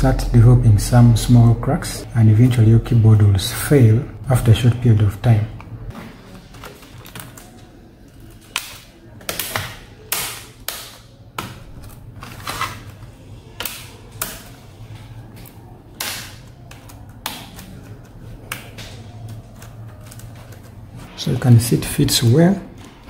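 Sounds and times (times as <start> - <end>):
steady low hum: 0.0 - 6.5.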